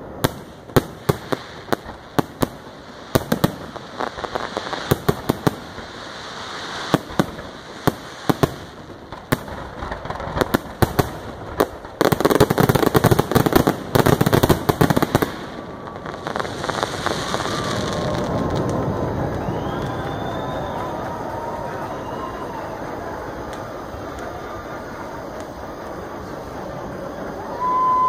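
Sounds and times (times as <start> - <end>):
fireworks bursting with crackle: 0.0 - 28.0.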